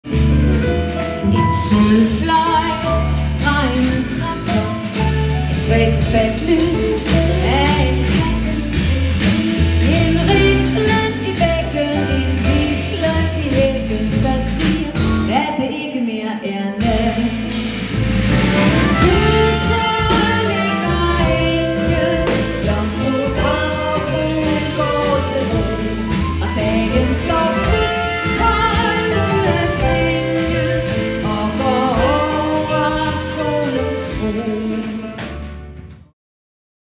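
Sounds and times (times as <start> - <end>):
woman singing pop song with band: 1.2 - 18.0, 19.0 - 35.3.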